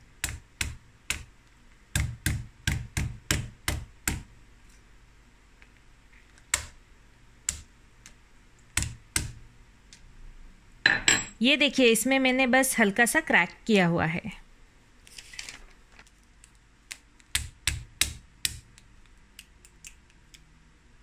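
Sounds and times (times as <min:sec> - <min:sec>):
mallet cracking crab shells: 0:01.9 - 0:04.3, 0:08.8 - 0:09.4, 0:16.9 - 0:18.8.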